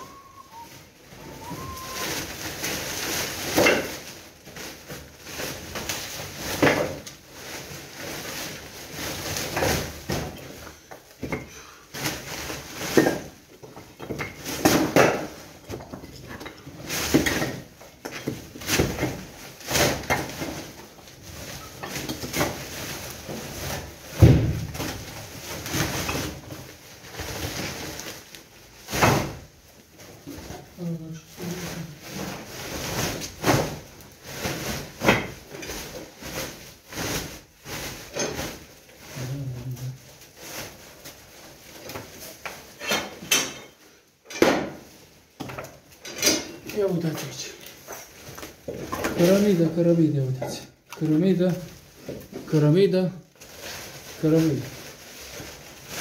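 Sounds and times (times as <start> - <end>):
boards and rubble clattering: 0.0 - 4.1, 4.7 - 29.4
plastic bag fabric rustling: 0.0 - 56.0.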